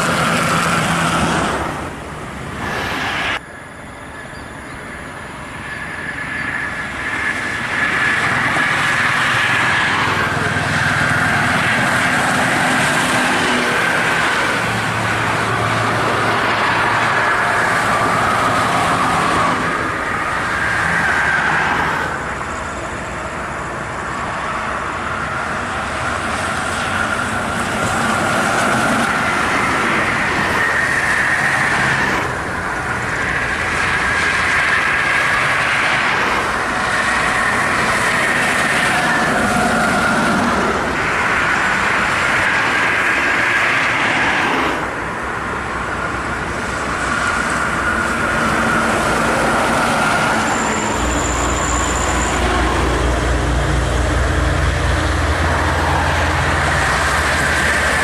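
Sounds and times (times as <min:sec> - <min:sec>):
highway traffic rushing past: 0:00.0 - 0:58.0
steady whine: 0:00.0 - 0:58.0.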